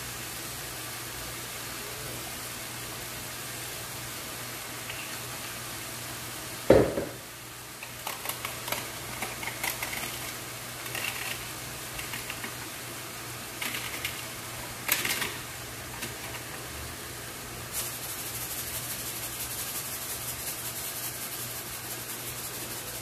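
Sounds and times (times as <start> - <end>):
mushrooms frying in a pan: 0.0 - 23.0
sharp knock: 6.7 - 7.2
seasoning shaker handled: 7.7 - 12.8, 13.5 - 16.7, 17.6 - 23.0
utensils clicking and tapping: 7.8 - 12.6.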